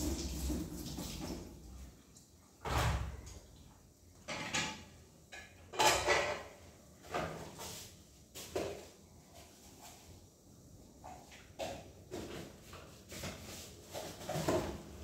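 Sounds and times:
kitchenware clunking on countertop: 4.2s - 7.5s.

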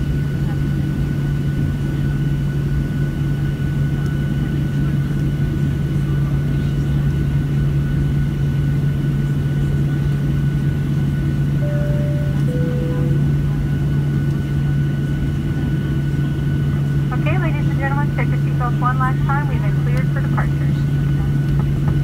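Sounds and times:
faint engine whine: 0.0s - 22.0s
jet engines humming: 10.5s - 22.0s.

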